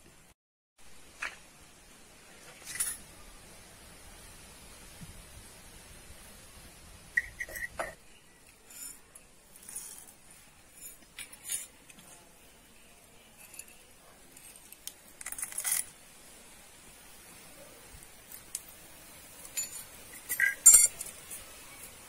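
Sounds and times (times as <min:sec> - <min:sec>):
light crackles: 0:17.8 - 0:19.6
sharp metal clink: 0:19.6 - 0:21.1.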